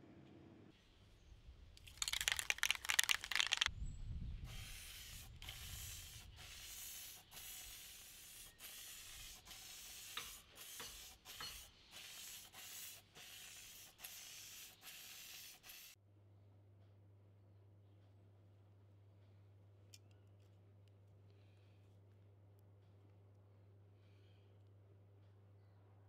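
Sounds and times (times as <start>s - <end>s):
spray can mixing ball rattling: 1.8s - 3.7s, 4.6s - 16.0s
short hissing spray bursts: 4.4s - 16.0s.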